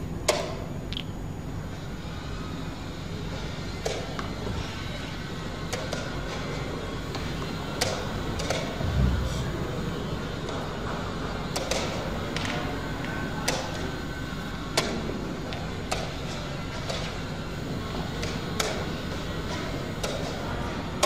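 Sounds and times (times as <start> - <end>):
low room hum: 6.3 - 12.4.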